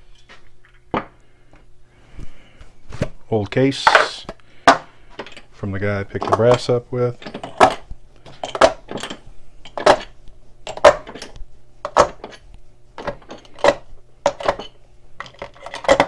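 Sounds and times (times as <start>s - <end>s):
metal cartridges clinking: 6.2s - 12.4s, 13.0s - 16.0s.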